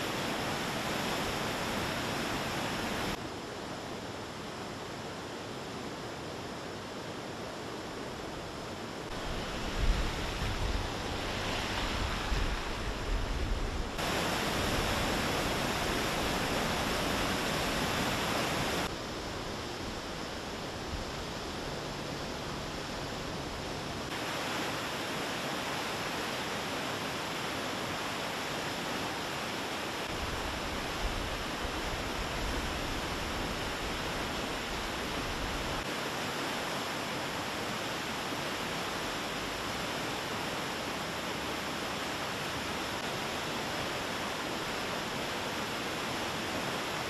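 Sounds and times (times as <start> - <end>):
flood water rushing: 0.0 - 3.3, 7.6 - 47.0
low gusty rumbling: 9.1 - 19.6.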